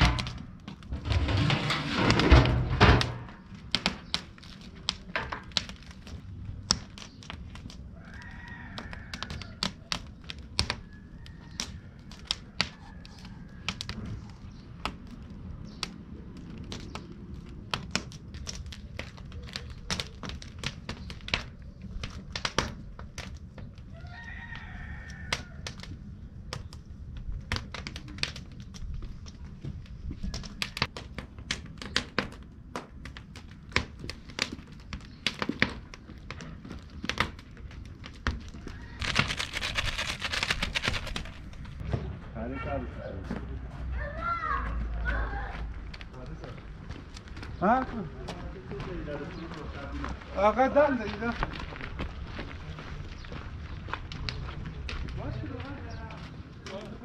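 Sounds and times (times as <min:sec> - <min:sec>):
sharp clicks and crackles: 0:00.0 - 0:23.9, 0:30.2 - 0:41.8
rooster crowing: 0:08.0 - 0:09.6, 0:23.9 - 0:25.7, 0:38.6 - 0:39.9.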